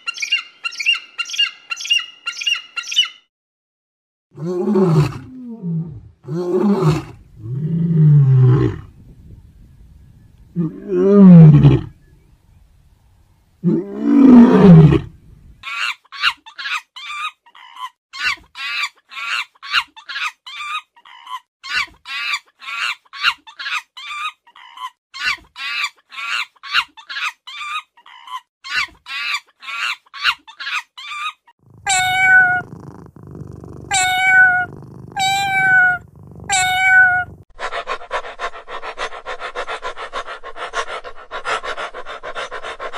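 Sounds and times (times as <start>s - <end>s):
young monkey chirping calls: 0.0s - 3.3s, 15.6s - 37.4s
lions roaring: 31.7s - 36.6s
kitten meowing: 31.8s - 37.4s.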